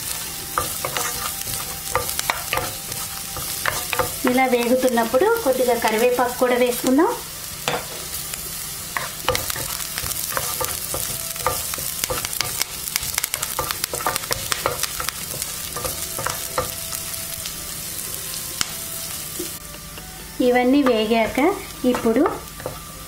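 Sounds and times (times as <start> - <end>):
spoon stirring in pan: 0.0 - 6.9, 8.9 - 17.4
garlic and chillies sizzling in oil: 0.0 - 23.0.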